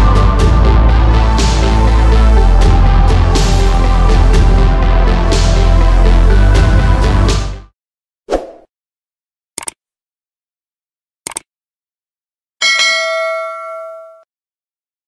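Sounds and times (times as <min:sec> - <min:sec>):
mouse clicks: 0:09.6 - 0:09.8, 0:11.3 - 0:11.5
bell ringing: 0:12.6 - 0:14.3.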